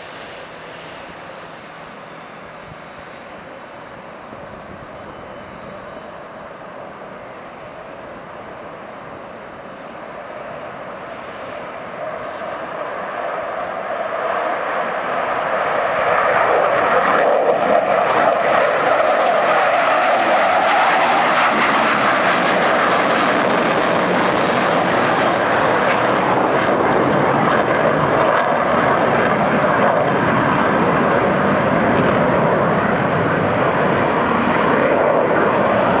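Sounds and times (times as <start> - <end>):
jet engine roar: 0.0 - 36.0.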